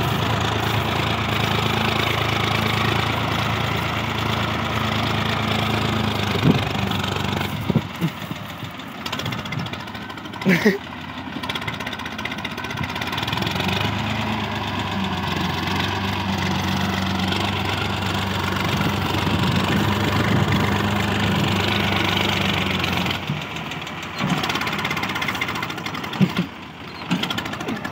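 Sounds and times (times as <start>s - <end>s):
tractor diesel engine running: 0.0s - 27.9s.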